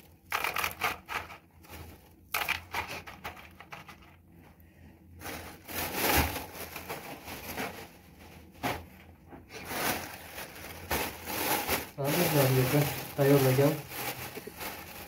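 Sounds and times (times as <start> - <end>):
clay pebbles rattling: 0.0 - 4.3
plastic bag rustling: 0.0 - 15.0.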